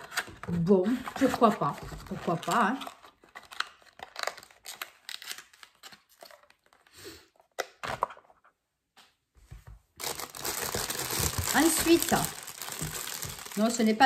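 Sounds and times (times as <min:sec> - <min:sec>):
handling a cardboard box: 0:10.0 - 0:14.0
plastic wrapping crinkling: 0:10.0 - 0:14.0.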